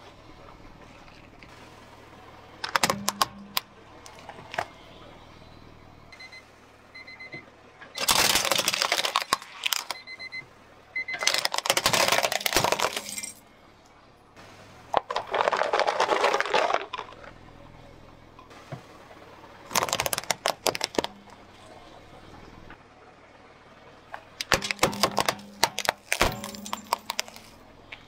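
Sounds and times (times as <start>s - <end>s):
plastic toys crushed under tyre: 2.6s - 3.5s, 8.0s - 10.1s, 11.1s - 13.4s, 14.9s - 17.3s, 19.7s - 21.4s, 24.4s - 27.6s.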